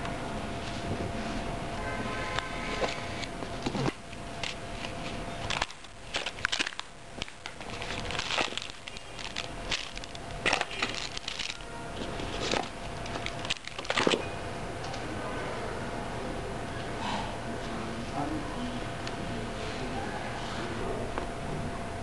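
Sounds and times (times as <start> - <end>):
cardboard and plastic rustling: 2.7 - 14.3.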